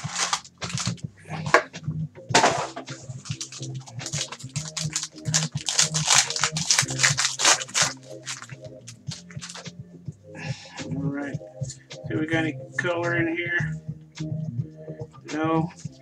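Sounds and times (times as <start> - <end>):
foil wrapper tearing and crinkling: 0.0 - 1.0, 2.6 - 9.6
background music with bass line: 0.0 - 16.0.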